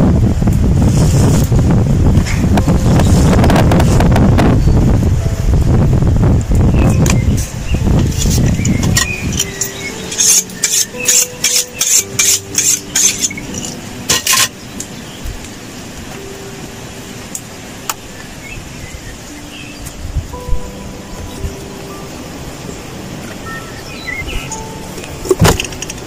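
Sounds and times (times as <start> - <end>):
knife sharpening scrapes: 10.1 - 14.5.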